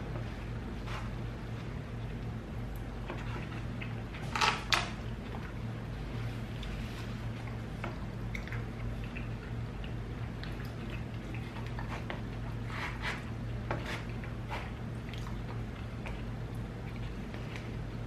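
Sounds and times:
steady low hum: 0.0 - 18.0
chewing and mouth clicks: 7.4 - 12.5.

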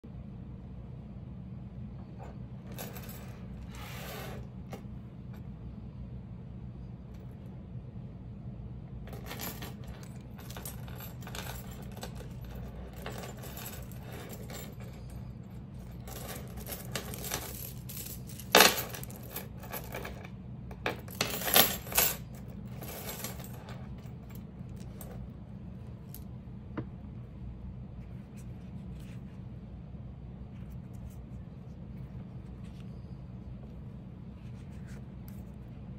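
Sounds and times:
steady low hum: 0.0 - 35.9
metal chain links clinking: 2.6 - 4.4, 9.1 - 20.3, 20.9 - 25.2.

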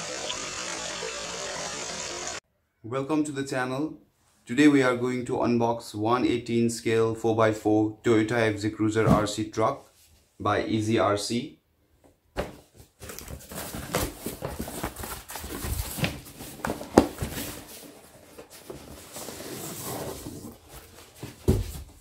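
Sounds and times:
cardboard box scraping and rubbing: 13.4 - 21.4.

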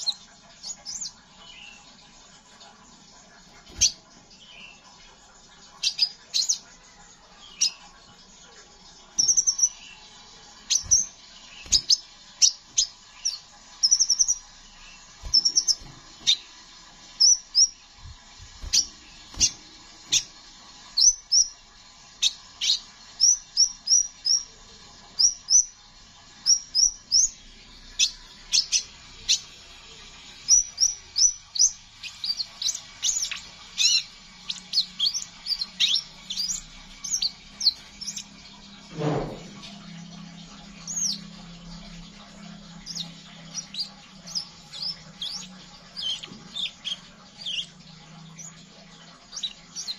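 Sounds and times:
bird chirping high and sharp: 0.0 - 1.8, 5.8 - 6.7, 9.2 - 10.0, 10.6 - 16.5, 17.2 - 17.8, 18.5 - 21.6, 22.2 - 24.5, 28.0 - 29.6, 30.4 - 38.4, 42.8 - 49.9.

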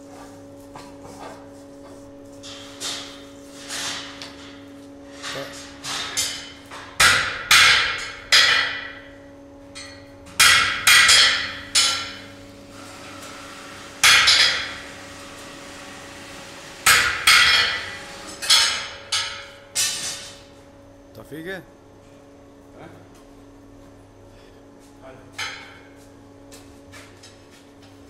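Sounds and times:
hammer striking hot steel: 5.8 - 9.2, 9.8 - 12.3, 14.0 - 14.8, 16.8 - 20.2.

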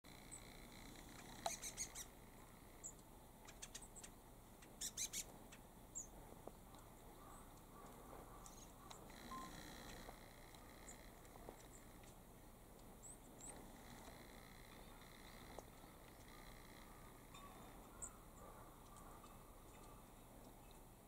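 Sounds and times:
high-pitched bird calls: 0.2 - 2.2, 2.8 - 6.1, 6.8 - 12.1, 14.7 - 20.8.

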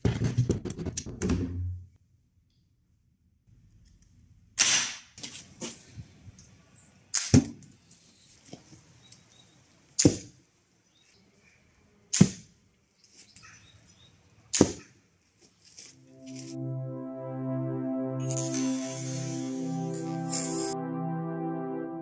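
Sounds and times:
crossbow shooting sharp snaps: 4.6 - 5.1, 7.1 - 7.4, 14.5 - 14.9.

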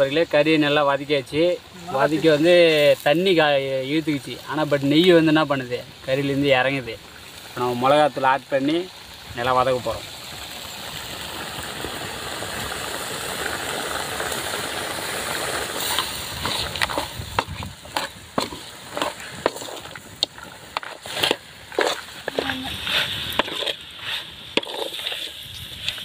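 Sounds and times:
meat sizzling in metal pan: 0.0 - 26.0
metal ladle scraping pan: 15.8 - 26.0.

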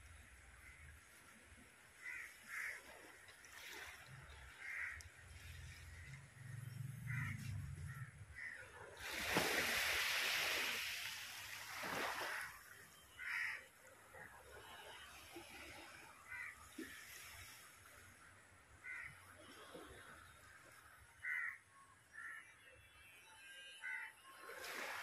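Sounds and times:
crows cawing: 2.0 - 2.8, 4.6 - 5.0, 7.1 - 8.6, 13.2 - 13.7, 16.2 - 16.6, 18.8 - 19.2, 21.2 - 22.4, 23.8 - 24.1.

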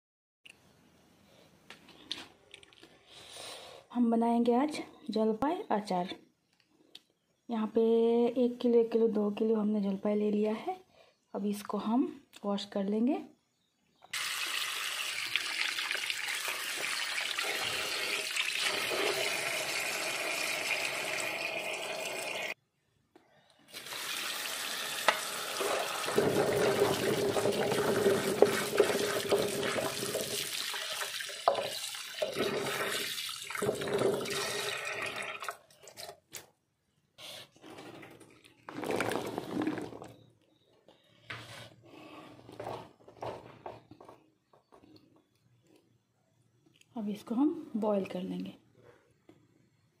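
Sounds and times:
tap water running into sink: 14.2 - 22.6, 23.7 - 35.6.

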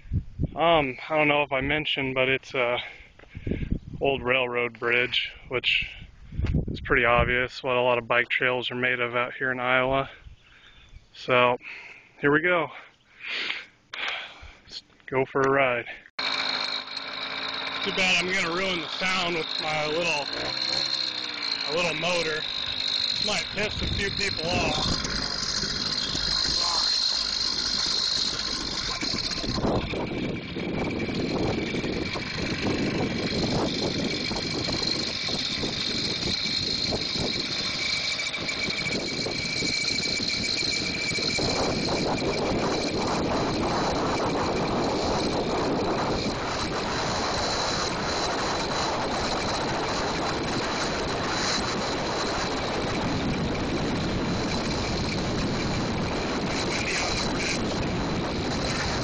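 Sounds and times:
small gas motor whining: 16.2 - 59.0
wind rushing: 21.7 - 59.0.

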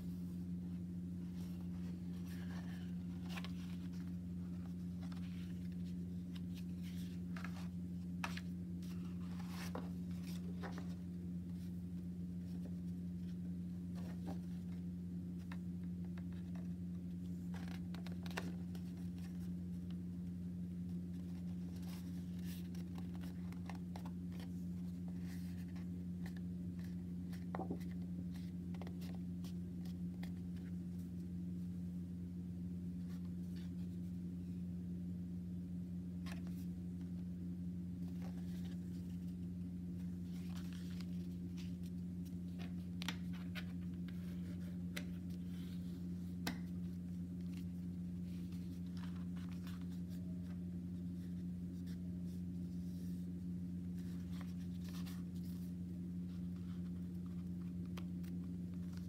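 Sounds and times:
steady low hum: 0.0 - 59.0
paper rustling and crackling: 1.3 - 14.8, 15.4 - 19.9, 21.0 - 30.8, 38.0 - 52.0.

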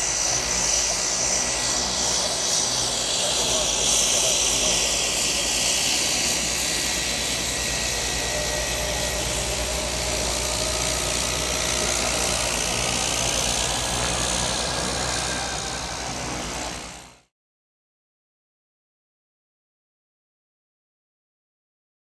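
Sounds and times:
turboprop engine whining: 0.0 - 17.3.

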